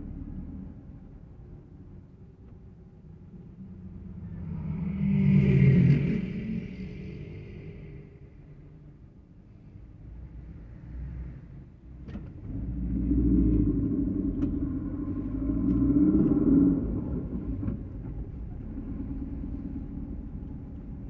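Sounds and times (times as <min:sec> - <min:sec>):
car engine and road rumble: 0:00.0 - 0:21.0.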